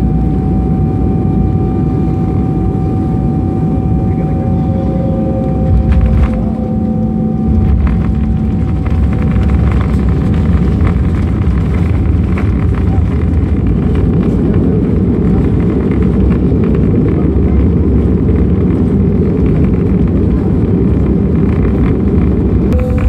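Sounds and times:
airliner engines roaring: 0.0s - 23.0s
wheels running on runway: 5.5s - 6.7s, 7.5s - 23.0s.

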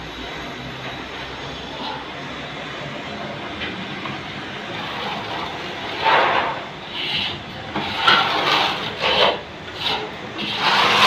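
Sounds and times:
steady background noise: 0.0s - 11.0s
trowel scraping plaster: 4.8s - 11.0s.

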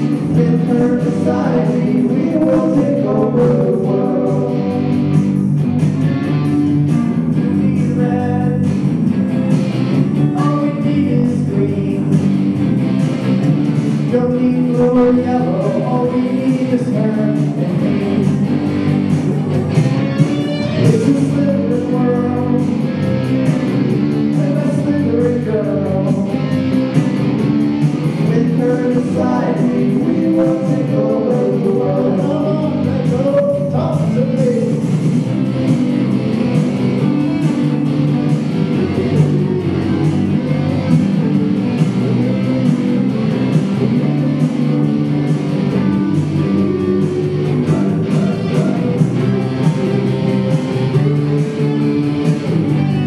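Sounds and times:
electric guitar: 0.0s - 53.0s
men singing: 0.1s - 4.9s, 7.5s - 8.8s, 10.3s - 12.3s, 14.1s - 18.5s, 20.7s - 22.7s, 24.3s - 26.3s, 28.2s - 34.8s, 46.6s - 49.6s.

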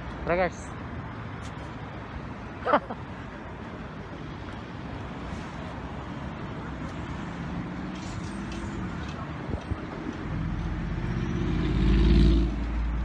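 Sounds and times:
rumble of passing vehicles: 0.0s - 13.0s
engine hum: 0.8s - 13.0s.

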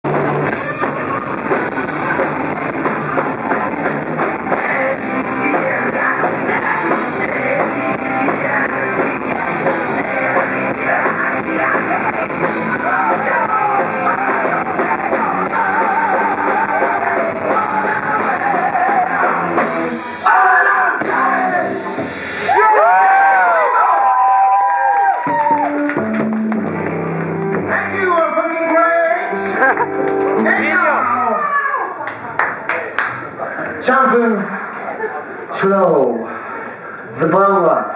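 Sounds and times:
live rock band: 0.0s - 31.8s
person singing: 0.5s - 22.0s.

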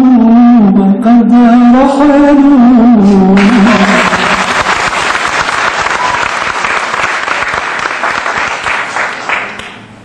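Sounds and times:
audience applauding: 3.4s - 9.9s.

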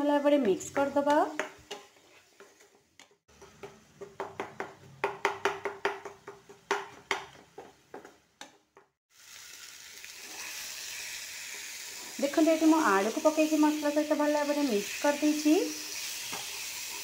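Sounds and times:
spatula scraping a pan: 0.8s - 3.6s
frying sizzle: 9.1s - 17.0s.

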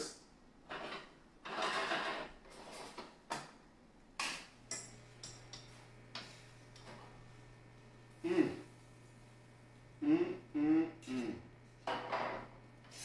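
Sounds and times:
low steady hum: 3.8s - 13.0s.

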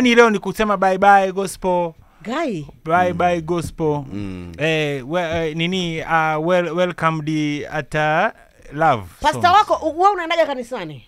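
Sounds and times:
man singing long notes: 4.1s - 4.8s.

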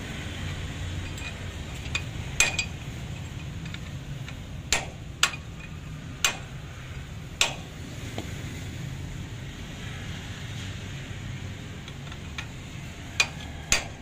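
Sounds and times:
hammer striking steel punch: 4.7s - 5.4s, 6.2s - 6.5s, 7.4s - 7.7s, 13.2s - 14.0s.

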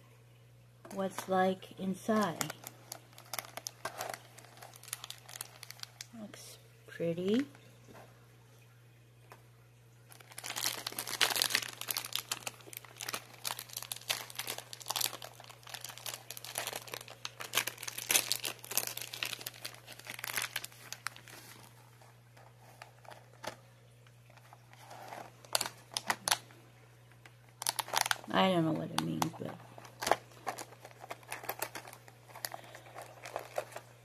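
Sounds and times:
plastic wrapper crackling: 0.9s - 6.4s, 10.1s - 34.0s.

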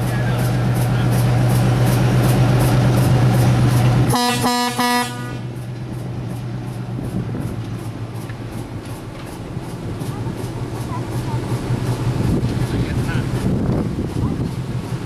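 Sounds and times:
diesel locomotive engines running: 0.0s - 15.0s
locomotive horn toots: 4.1s - 5.6s.

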